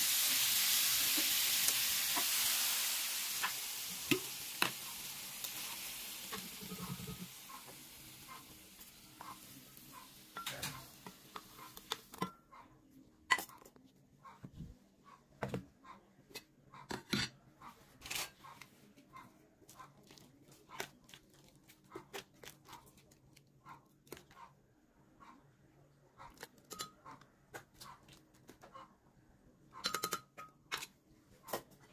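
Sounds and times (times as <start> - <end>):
vegetables sizzling in a pan: 0.0 - 12.0
spatula stirring in pan: 3.3 - 12.4.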